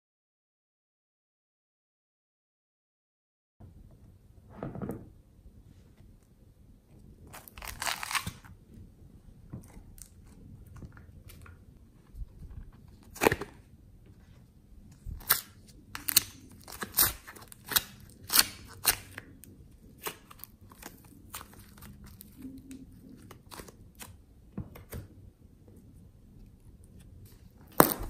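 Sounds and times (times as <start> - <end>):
plastic crackling and crinkling: 7.3 - 8.6, 15.0 - 24.2.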